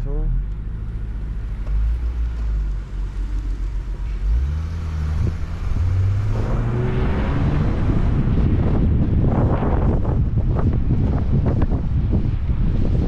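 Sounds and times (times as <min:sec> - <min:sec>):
car engine idling and revving: 0:00.0 - 0:13.0
wind on microphone: 0:04.5 - 0:13.0.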